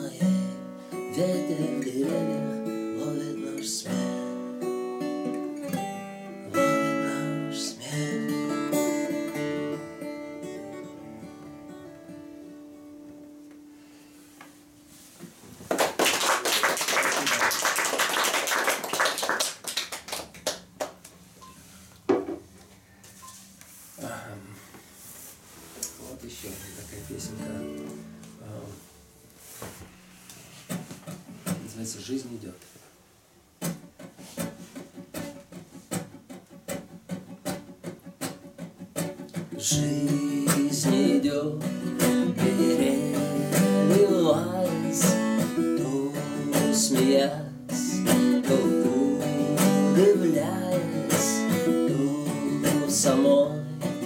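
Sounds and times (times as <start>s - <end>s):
acoustic guitar strumming: 0.0s - 15.1s, 25.5s - 31.7s, 33.5s - 54.0s
audience applauding: 15.7s - 21.0s
knock: 22.1s - 22.4s
guitar chord: 27.1s - 29.2s.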